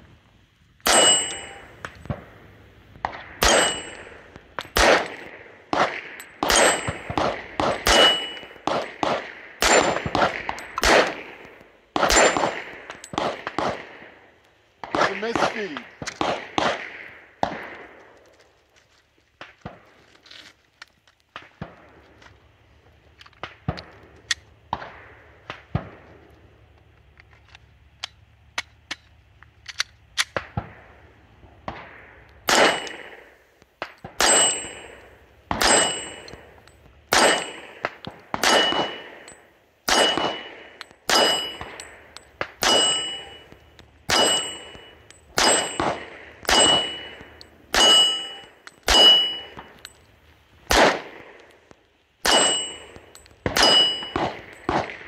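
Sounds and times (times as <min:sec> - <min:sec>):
pistol shots: 0:00.8 - 0:02.3, 0:03.0 - 0:14.2, 0:14.8 - 0:18.0, 0:31.6 - 0:36.5, 0:37.1 - 0:49.9, 0:50.7 - 0:51.5, 0:52.2 - 0:55.0
steel target ringing: 0:00.9 - 0:01.8, 0:03.4 - 0:04.3, 0:06.2 - 0:07.2, 0:07.8 - 0:08.6, 0:09.6 - 0:10.9, 0:12.1 - 0:12.7, 0:32.5 - 0:33.1, 0:34.2 - 0:37.8, 0:38.4 - 0:49.9, 0:52.2 - 0:54.7.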